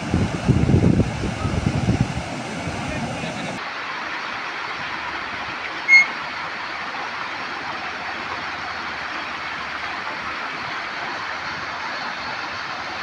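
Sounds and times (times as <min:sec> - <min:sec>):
floodwater rushing: 0:00.0 - 0:13.0
short high-pitched tone: 0:05.9 - 0:06.1.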